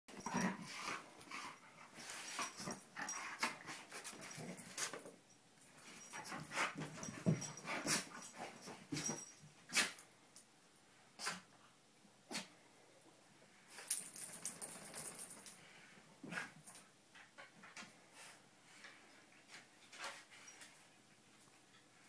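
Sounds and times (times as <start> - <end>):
dogs playing noises: 0.1 - 10.1.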